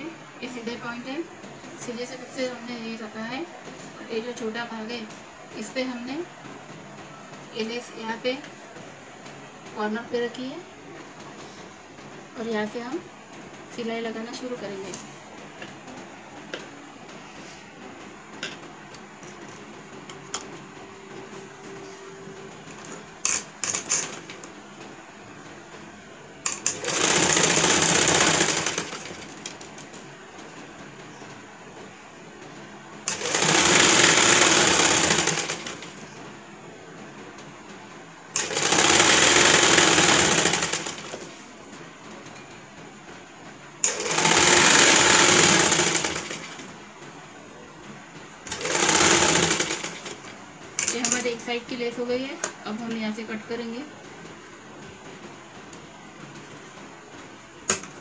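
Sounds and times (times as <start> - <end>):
room noise: 0.0 - 58.0
sewing machine stitching: 23.2 - 24.5, 26.4 - 29.7, 33.0 - 36.1, 38.4 - 41.4, 43.8 - 46.7, 48.5 - 51.4.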